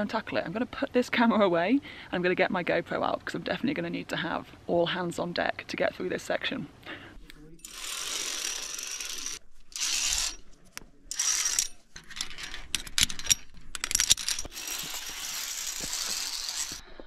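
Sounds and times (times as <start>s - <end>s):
carabiners clicking on steel cable: 7.6s - 16.9s.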